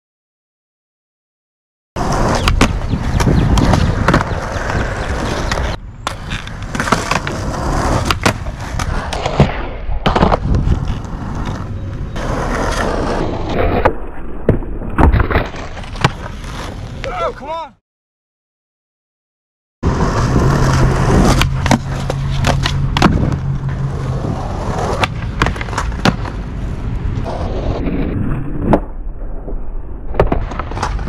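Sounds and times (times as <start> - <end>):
skateboard trucks grinding concrete: 2.0 - 14.2, 14.9 - 17.5, 19.8 - 28.8, 30.2 - 31.0
skateboard tail popping and landing: 2.0 - 17.0, 19.9 - 27.8, 28.4 - 31.0
skateboard wheels rolling: 2.0 - 17.6, 19.8 - 31.0.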